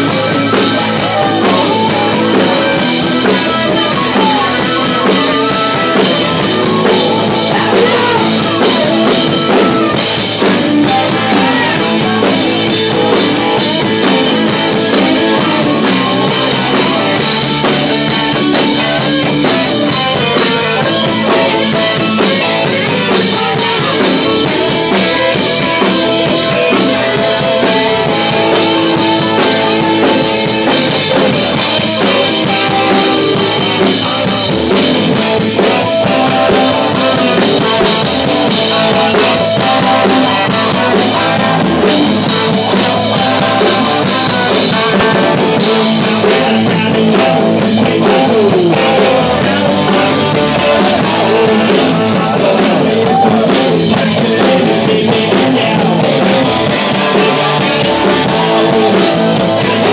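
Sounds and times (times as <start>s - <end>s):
harmonica through microphone: 0.0s - 34.4s
drum kit: 0.0s - 59.9s
electric guitars: 0.0s - 59.9s.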